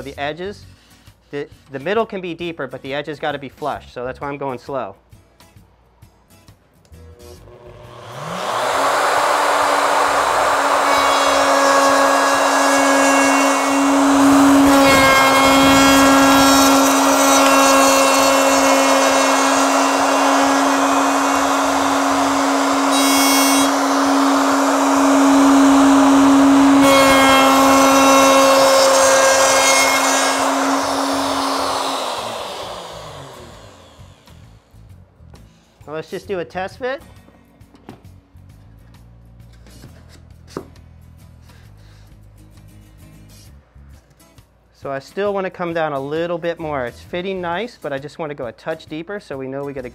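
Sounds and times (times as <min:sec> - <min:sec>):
router cutting foam: 0:07.1 - 0:34.6
router winding down: 0:07.1 - 0:34.7.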